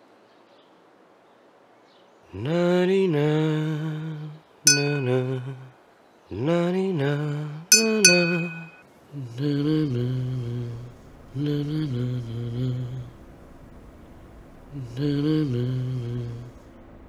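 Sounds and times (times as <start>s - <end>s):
spoon clinking a glass: 4.7s - 5.5s, 7.7s - 8.8s
man humming low tones: 7.2s - 13.2s, 14.7s - 16.6s.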